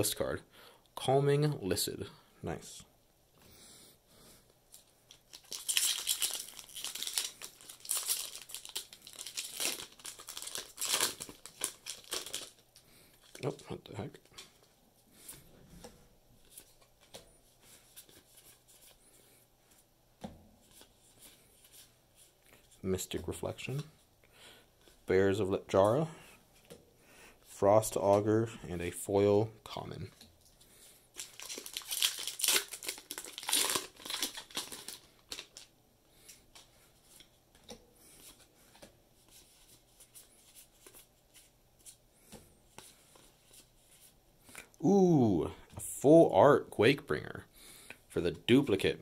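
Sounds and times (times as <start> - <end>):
foil wrapper crinkling: 5.1 - 12.6, 31.2 - 35.7.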